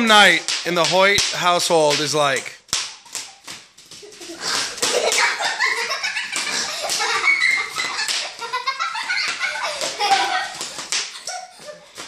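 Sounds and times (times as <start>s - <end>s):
children giggling and squealing: 3.0s - 12.0s.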